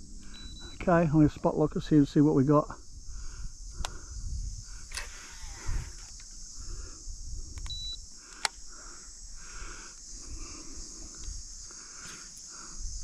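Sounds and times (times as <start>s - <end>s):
high-pitched insect drone: 0.0s - 13.0s
sharp ticks: 3.8s - 4.0s, 7.5s - 8.6s.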